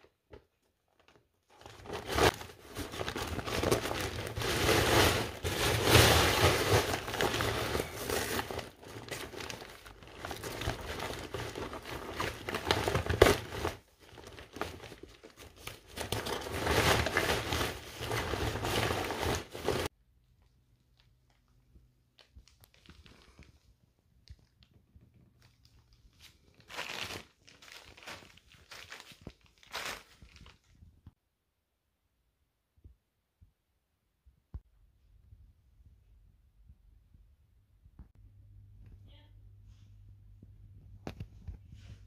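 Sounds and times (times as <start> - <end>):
fabric and plastic crinkling: 0.0 - 31.1.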